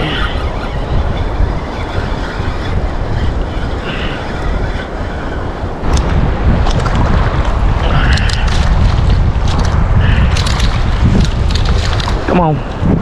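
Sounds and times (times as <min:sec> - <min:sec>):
wind rushing over microphone: 0:00.0 - 0:13.0
sharp crackles: 0:05.8 - 0:12.7.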